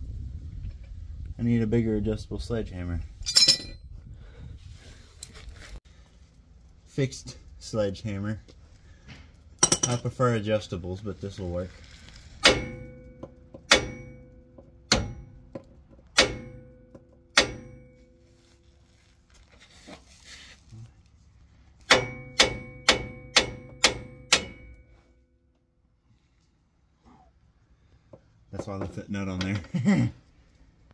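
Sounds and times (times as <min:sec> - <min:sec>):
sledgehammer striking steel: 0:12.4 - 0:18.4, 0:21.9 - 0:25.1.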